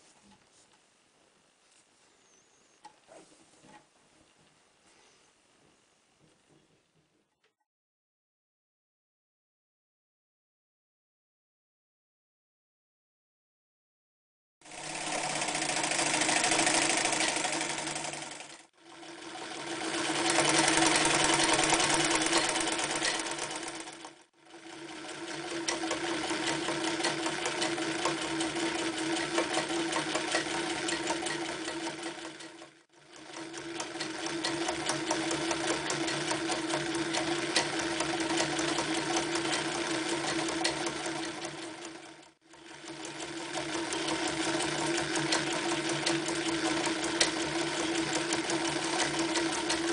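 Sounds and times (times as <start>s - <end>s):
sewing machine motor hum: 14.6s - 49.9s
sewing needle clatter: 19.7s - 49.9s.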